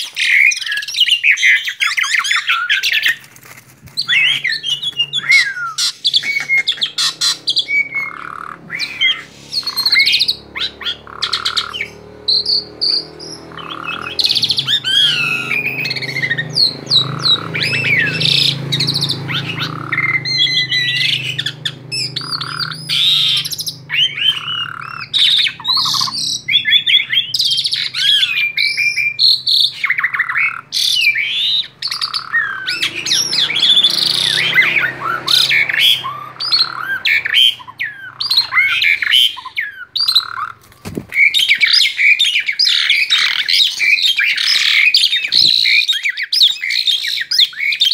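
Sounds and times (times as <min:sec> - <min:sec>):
starling singing: 0:00.0 - 0:47.9.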